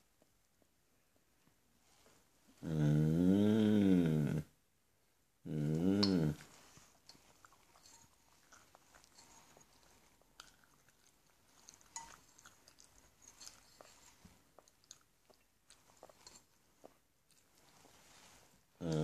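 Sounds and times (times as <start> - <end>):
faint chewing: 5.6 - 19.0
fork scraping ceramic bowl: 7.6 - 9.8, 11.7 - 12.5.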